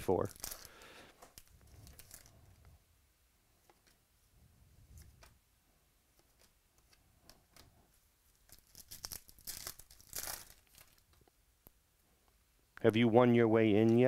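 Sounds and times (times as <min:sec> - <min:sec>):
plastic card sleeve crinkling: 0:00.0 - 0:02.5, 0:08.3 - 0:11.3.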